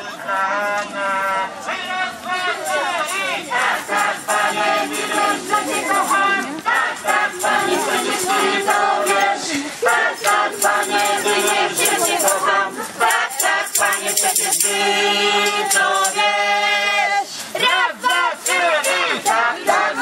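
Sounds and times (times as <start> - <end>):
group of voices singing: 0.0 - 20.0
shaking rattle rhythm: 2.0 - 16.5, 17.5 - 20.0.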